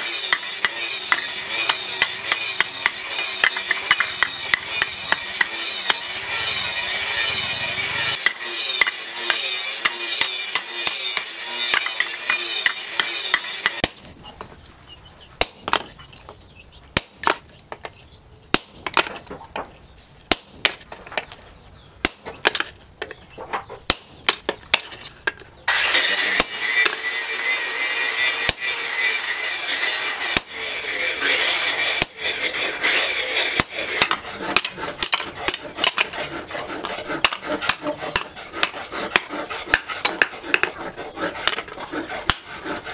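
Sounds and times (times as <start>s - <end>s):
hammer striking steel on anvil: 0.3s - 6.2s, 8.2s - 14.1s, 15.4s - 15.9s, 18.5s - 19.1s, 22.0s - 22.6s, 26.2s - 27.1s, 28.2s - 31.0s, 31.7s - 32.5s, 33.4s - 36.2s.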